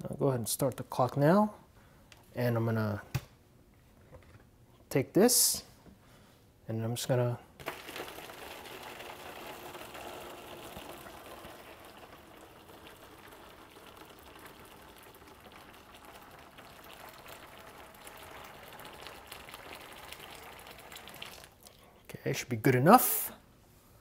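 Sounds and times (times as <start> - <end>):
boiling water pouring from kettle: 7.6 - 21.7.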